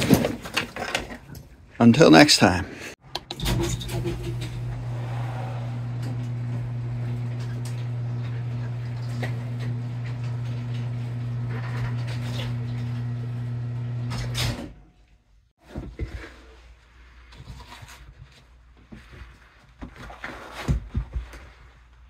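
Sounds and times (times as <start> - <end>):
garage door opener motor humming: 3.1 - 14.8.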